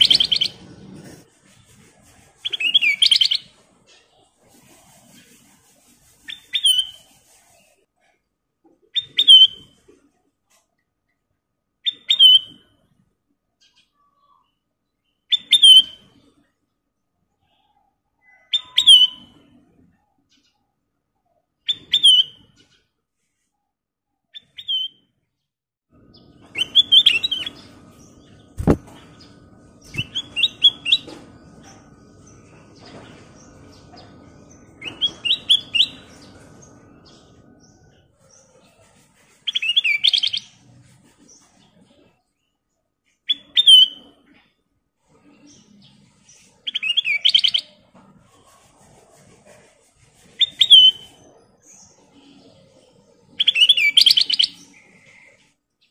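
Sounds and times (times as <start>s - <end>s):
bird chirping: 0.0s - 4.4s, 8.9s - 9.9s, 11.8s - 12.7s, 13.6s - 16.5s, 17.3s - 23.5s, 24.2s - 25.2s, 26.0s - 42.6s, 50.4s - 55.9s.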